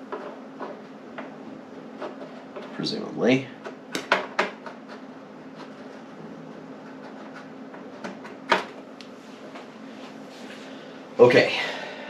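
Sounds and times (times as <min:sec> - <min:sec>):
faint steady hum: 0:00.0 - 0:12.0
audio cables clicking and knocking: 0:03.6 - 0:05.0, 0:07.4 - 0:08.9.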